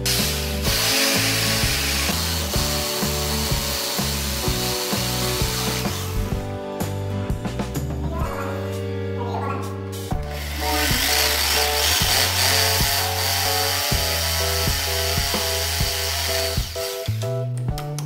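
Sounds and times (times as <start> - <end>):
rotary hammer drill boring: 0.0 - 6.3, 10.3 - 17.2
background music with plucked notes: 0.0 - 18.0.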